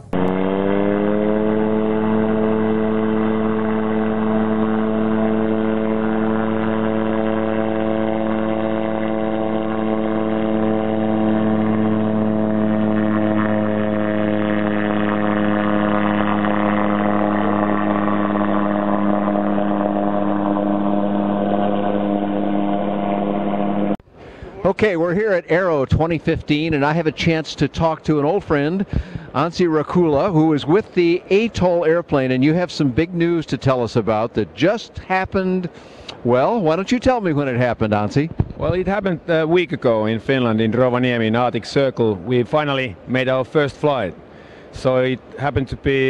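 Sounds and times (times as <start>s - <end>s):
propeller plane engine drone: 0.0s - 24.7s, 28.8s - 29.4s.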